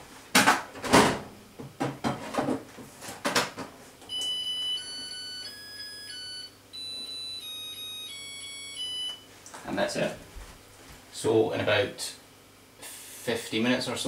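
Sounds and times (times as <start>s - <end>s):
electronic beeper tune: 4.1s - 9.2s.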